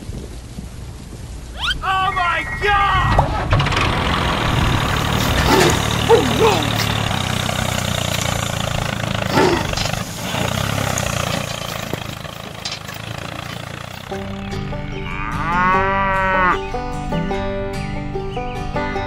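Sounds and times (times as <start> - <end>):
rising and falling call effect: 1.6 - 4.7
cheerful music: 14.1 - 16.0.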